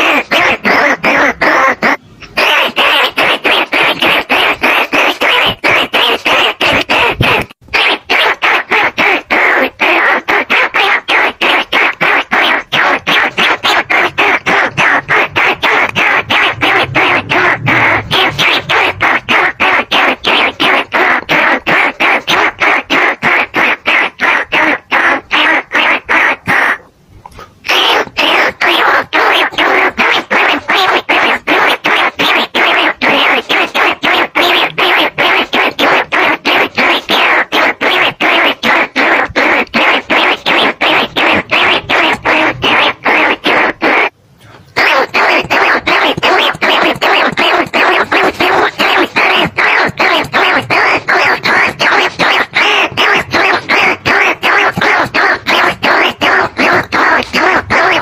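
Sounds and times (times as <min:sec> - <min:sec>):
rat calls: 0:00.0 - 0:26.9, 0:27.6 - 0:44.1, 0:44.7 - 0:58.0.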